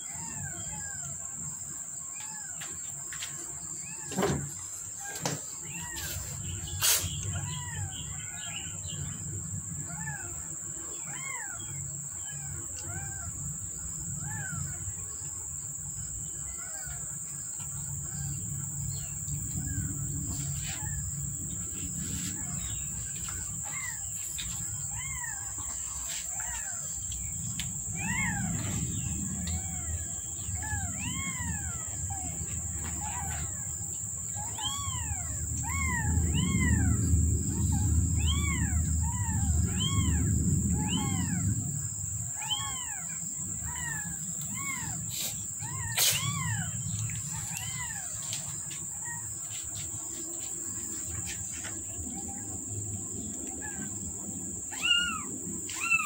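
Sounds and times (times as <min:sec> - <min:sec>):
high insect drone: 0:00.0 - 0:56.0
kittens mewing: 0:21.9 - 0:27.0, 0:27.6 - 0:33.7, 0:34.3 - 0:41.6, 0:42.4 - 0:48.4, 0:54.7 - 0:56.0.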